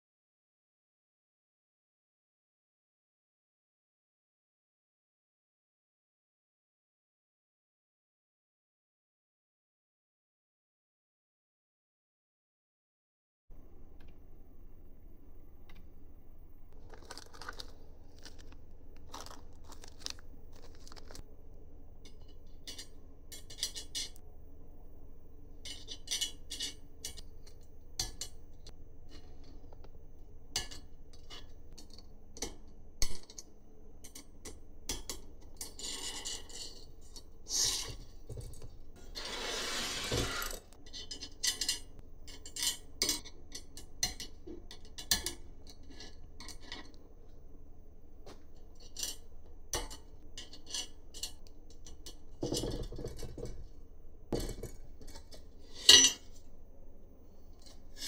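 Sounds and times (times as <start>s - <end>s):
small hard parts clinking: 16.8s - 21.2s, 54.3s - 56.5s
long noisy scrape: 39.0s - 40.8s.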